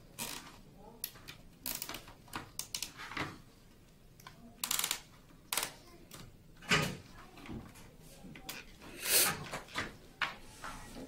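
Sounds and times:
plastic clicks and rubbing: 0:00.2 - 0:03.4, 0:04.2 - 0:07.0.

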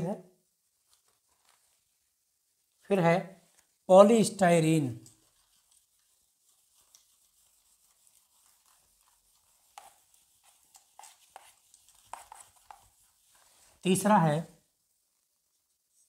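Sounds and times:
duster wiping a whiteboard: 0:03.6 - 0:16.0.

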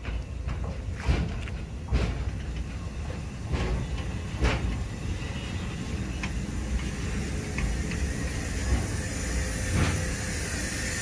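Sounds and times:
wagon clunks: 0:00.0 - 0:04.9
wagons rolling on track: 0:00.0 - 0:09.0.

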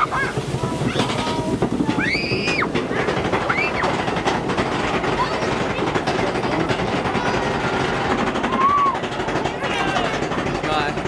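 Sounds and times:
raft ride rumbling and rattling: 0:00.0 - 0:11.0.

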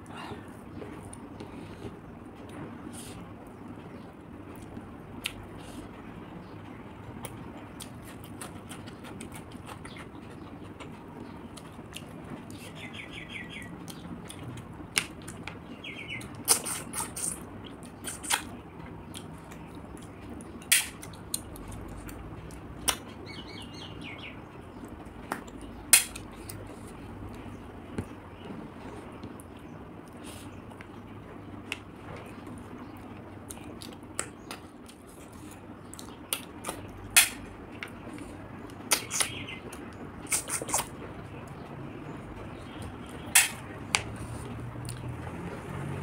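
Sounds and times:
bird chirping in trills: 0:12.6 - 0:13.7, 0:15.7 - 0:16.3, 0:23.2 - 0:24.7.

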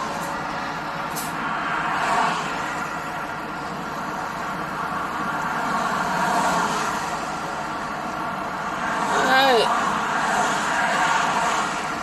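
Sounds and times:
diesel truck engine idling: 0:00.0 - 0:09.7.

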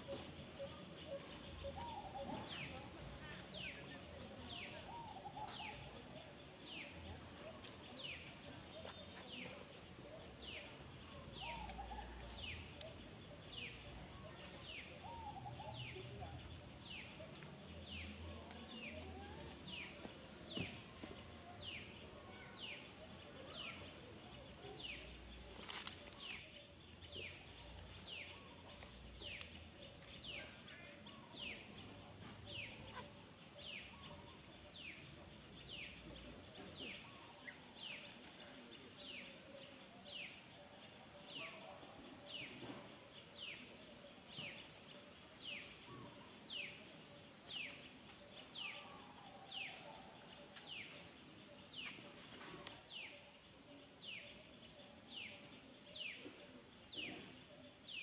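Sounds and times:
low outdoor background noise: 0:00.0 - 0:58.0.

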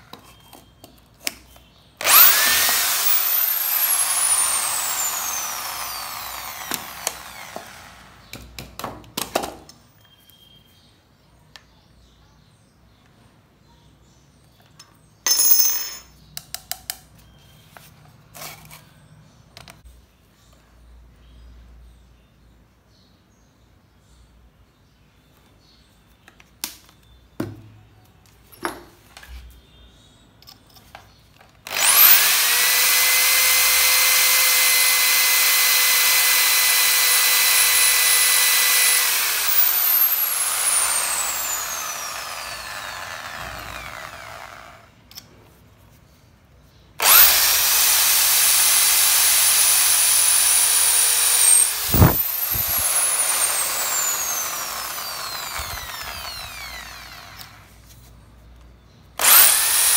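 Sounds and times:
power drill drilling into metal: 0:02.0 - 0:08.2, 0:31.7 - 0:44.9, 0:47.0 - 0:57.7, 0:59.2 - 0:59.9.

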